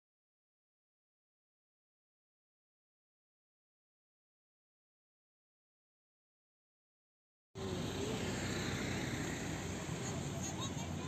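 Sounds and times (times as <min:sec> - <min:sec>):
outdoor noise: 0:07.6 - 0:11.0.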